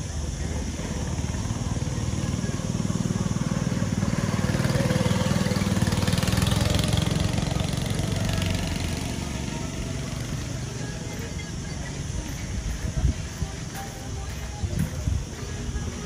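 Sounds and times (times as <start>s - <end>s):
go-kart engine running: 0.0s - 16.0s.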